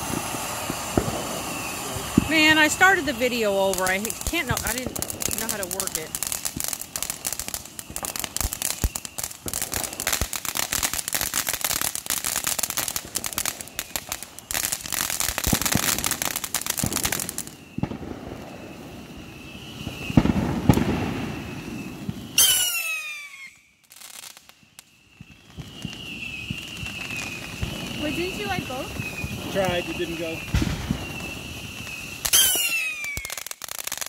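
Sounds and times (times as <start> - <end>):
fireworks crackling: 0.0 - 34.0
fireworks hissing: 0.0 - 34.0
short falling whistle: 22.4 - 23.7, 32.3 - 33.4.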